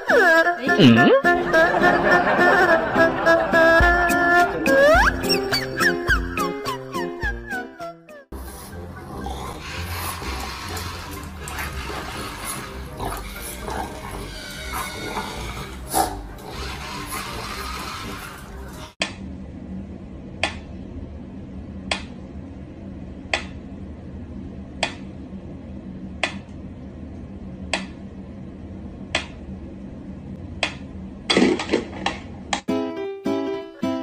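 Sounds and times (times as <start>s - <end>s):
steady low hum: 8.3s - 32.7s.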